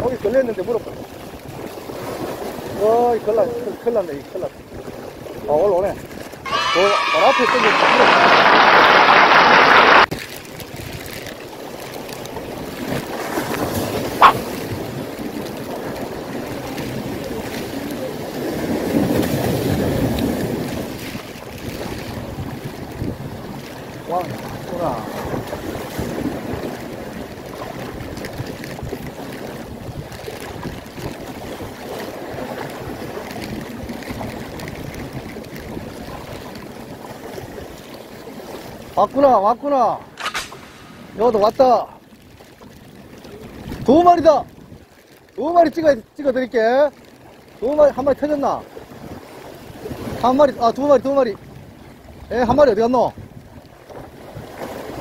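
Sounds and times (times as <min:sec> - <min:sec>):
sea water splashing and rushing: 0:00.0 - 0:55.0
water lapping: 0:00.0 - 0:55.0
wind rushing over microphone: 0:12.4 - 0:36.5, 0:39.9 - 0:42.0
short sharp click: 0:40.2 - 0:41.2.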